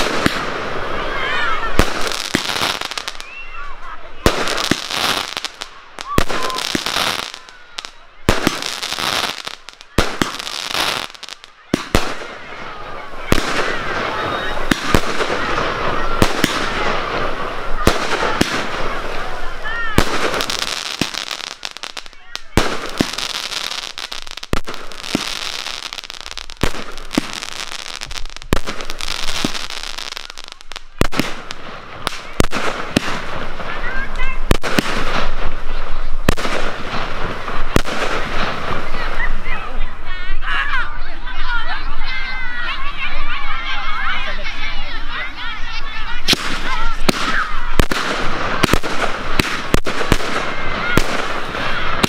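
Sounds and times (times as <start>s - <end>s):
crackling hiss of fireworks: 0.0s - 52.0s
crowd chatter: 0.0s - 52.0s
firework shells bursting: 46.2s - 52.0s.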